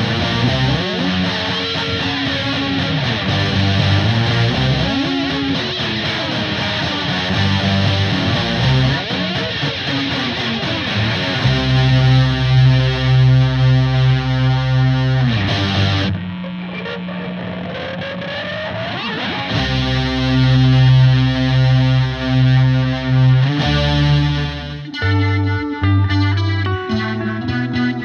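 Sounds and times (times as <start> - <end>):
distorted electric guitars: 0.0 - 28.0.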